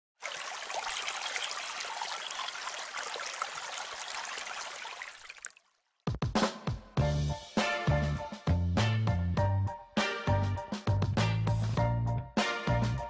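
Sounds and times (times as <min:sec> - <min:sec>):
water trickling and splashing: 0:00.2 - 0:06.0
music with sharp notes: 0:06.3 - 0:13.0.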